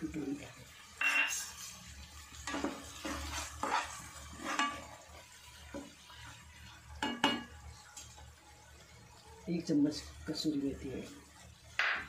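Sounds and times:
spatula scraping frying pan: 0:00.9 - 0:06.4.

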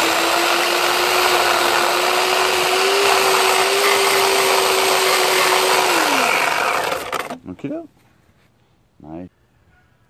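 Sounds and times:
electric chainsaw motor whine: 0:00.0 - 0:07.4.

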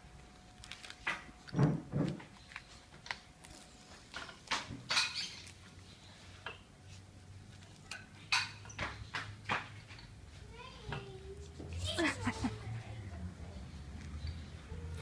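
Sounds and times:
dry leaf crackling and rustling: 0:00.3 - 0:01.2, 0:02.4 - 0:04.2.

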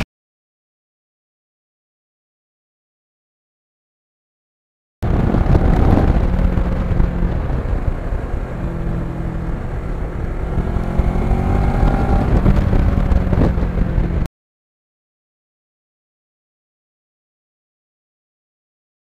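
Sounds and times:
motorcycle engine running: 0:05.0 - 0:14.3
wind rumble on microphone: 0:05.0 - 0:14.3.

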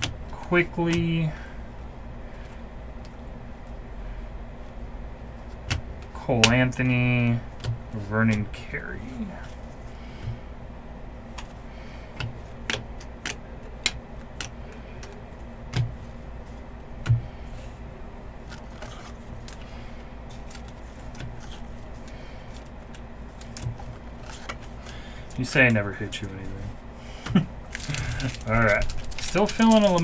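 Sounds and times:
steady low hum: 0:00.0 - 0:30.0
cards clicking and tapping: 0:05.4 - 0:07.0, 0:07.6 - 0:08.6, 0:11.3 - 0:17.3, 0:18.4 - 0:19.7, 0:20.3 - 0:26.3, 0:27.2 - 0:30.0.

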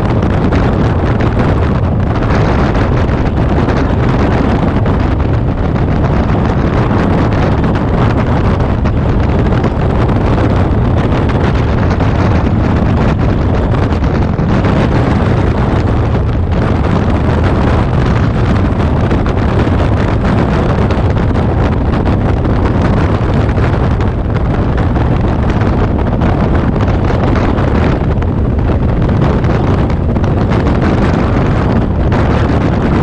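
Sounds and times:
motorcycle running: 0:00.0 - 0:33.0
wind rushing over microphone: 0:00.0 - 0:33.0.

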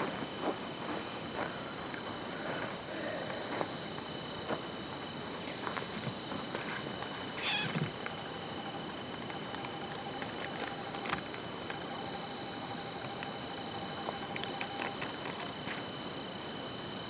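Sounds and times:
crickets chirping: 0:00.0 - 0:17.0
light clicks and rustles: 0:14.0 - 0:15.9.

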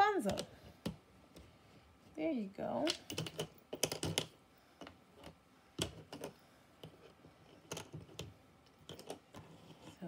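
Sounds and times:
puzzle pieces clicking on tabletop: 0:02.8 - 0:04.4.

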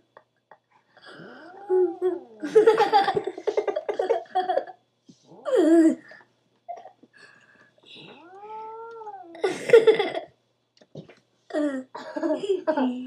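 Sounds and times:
cat rough cry: 0:01.1 - 0:02.5, 0:08.0 - 0:09.5
cat meowing: 0:08.0 - 0:09.4.

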